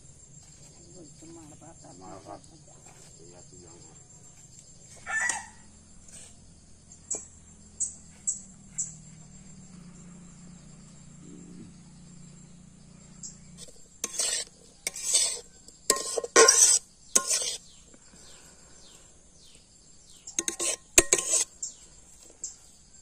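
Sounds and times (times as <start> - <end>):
metal spatula scraping a pan: 13.6 - 17.8, 20.4 - 21.8.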